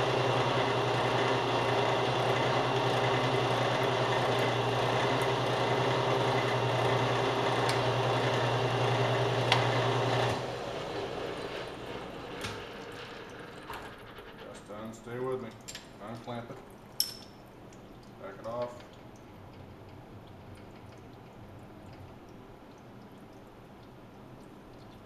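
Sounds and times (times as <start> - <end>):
metal lathe humming: 0.0 - 14.6.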